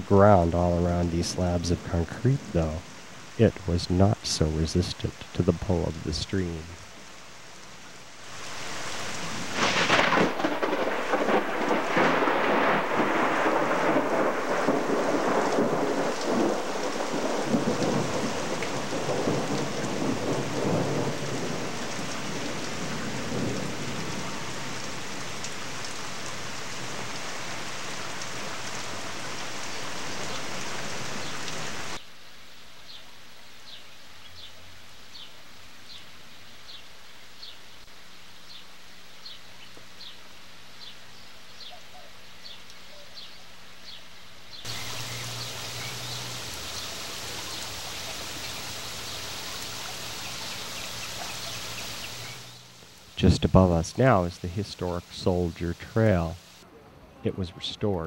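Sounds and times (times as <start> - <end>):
heavy rain: 0.0 - 58.0
thunderclap: 9.2 - 24.3, 53.2 - 56.4
rolling thunder rumble: 9.2 - 24.8.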